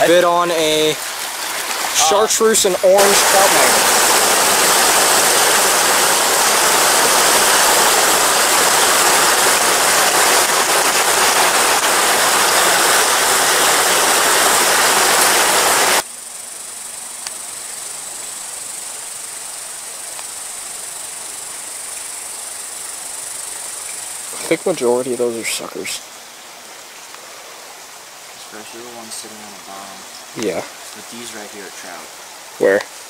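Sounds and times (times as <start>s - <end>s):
water rushing over rocks: 0.0s - 16.1s
high-pitched insect trill: 2.0s - 26.5s.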